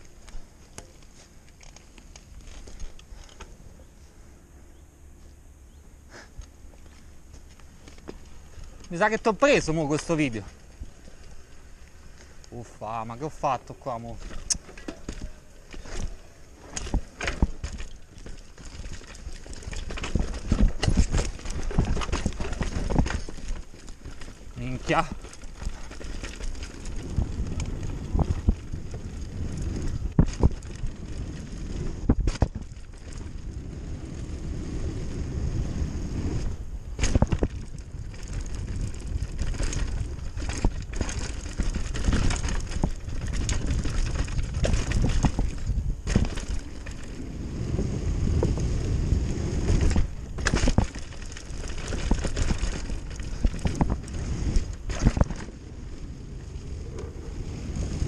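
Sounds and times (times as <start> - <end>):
bike rattling and knocking: 0.0 - 3.6, 6.7 - 12.2, 12.8 - 34.5, 36.3 - 57.2
bike tyres rumbling on dirt: 0.0 - 4.0, 6.1 - 58.0
wind on microphone: 24.9 - 58.0.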